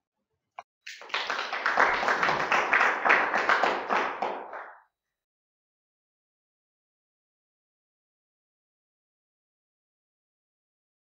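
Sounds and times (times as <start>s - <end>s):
hands clapping: 0.8s - 4.8s.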